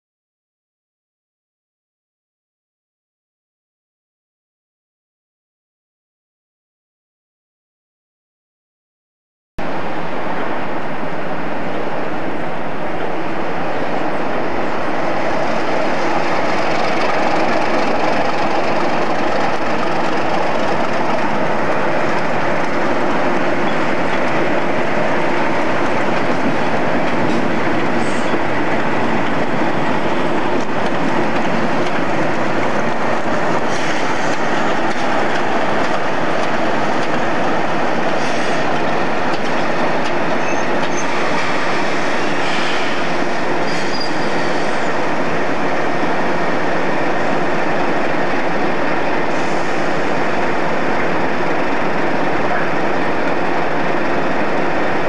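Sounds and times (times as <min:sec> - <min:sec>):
diesel locomotive engines: 0:09.6 - 0:55.0
wheels on track: 0:13.0 - 0:55.0.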